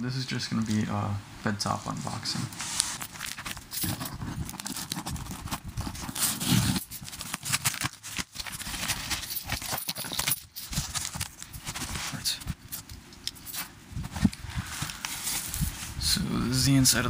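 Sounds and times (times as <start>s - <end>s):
cardboard box scraping and rustling: 2.0s - 9.7s.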